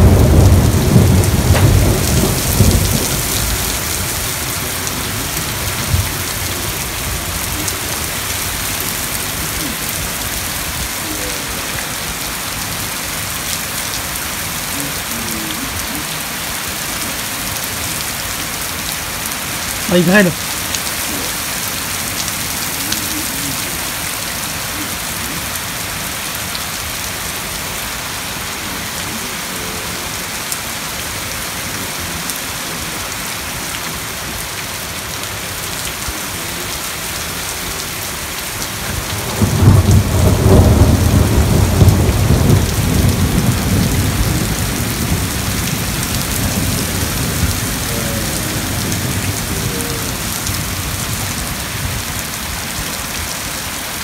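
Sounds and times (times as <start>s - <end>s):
thunder rumble: 0.0s - 11.3s, 38.7s - 52.0s
heavy rain and hail falling: 0.0s - 54.0s.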